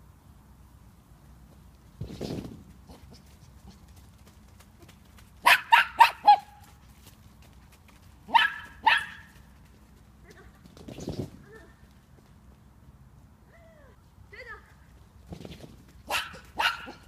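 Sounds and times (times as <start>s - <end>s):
dog barking: 5.4s - 6.5s, 8.3s - 9.3s, 16.1s - 17.0s.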